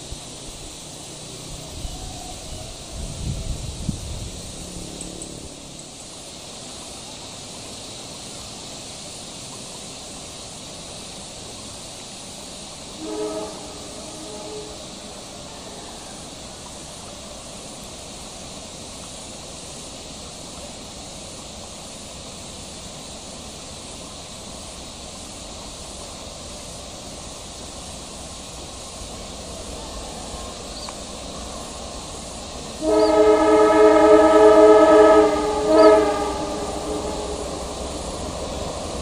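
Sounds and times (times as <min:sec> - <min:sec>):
train running noise: 0:00.0 - 0:39.0
train horn blasts: 0:13.0 - 0:15.8, 0:32.8 - 0:38.0.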